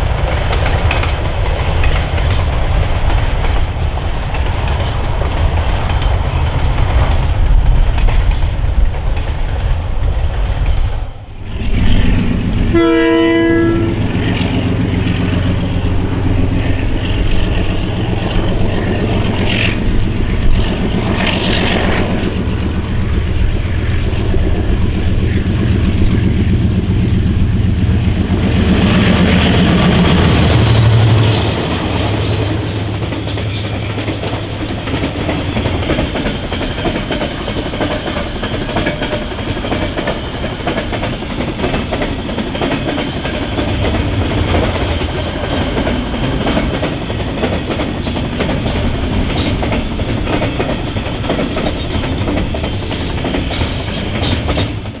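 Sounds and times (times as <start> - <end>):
diesel locomotives running hard: 0.0 - 55.0
train horn blast: 12.6 - 14.2.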